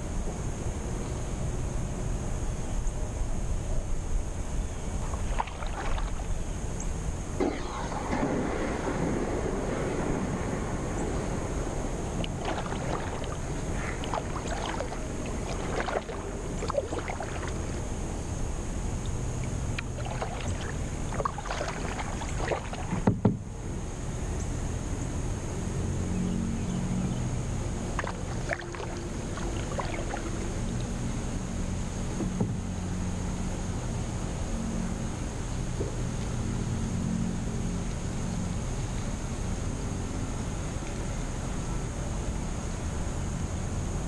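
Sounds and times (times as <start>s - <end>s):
steady hiss: 0.0s - 25.7s
paddle splashing water: 4.9s - 23.5s, 27.7s - 31.4s.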